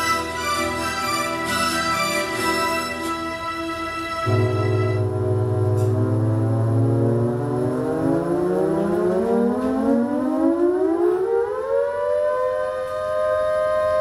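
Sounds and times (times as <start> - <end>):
low steady drone: 0.0 - 14.0
synthesizer tone gliding upward: 0.0 - 14.0.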